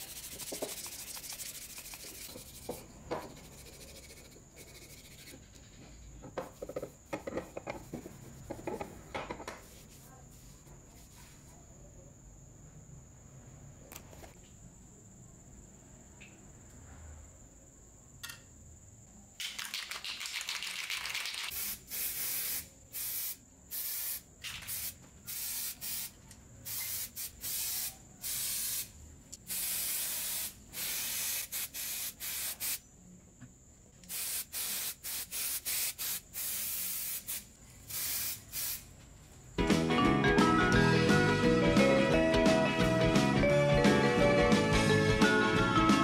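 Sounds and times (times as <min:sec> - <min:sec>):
spray can hissing bursts: 0:00.0 - 0:02.8, 0:19.8 - 0:32.8, 0:34.1 - 0:38.9.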